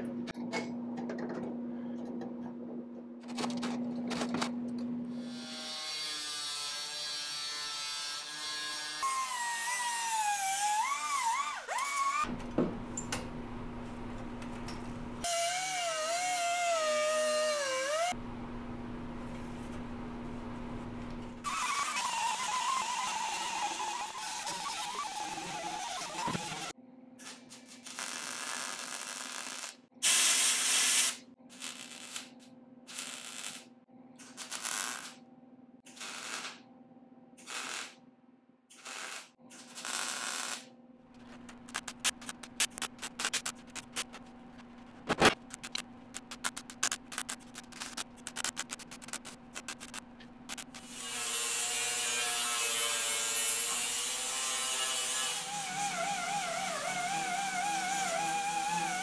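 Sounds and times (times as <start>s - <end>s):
welding crackling: 21.0s - 35.2s, 35.9s - 36.6s, 37.4s - 38.0s, 38.8s - 44.3s, 45.0s - 51.1s.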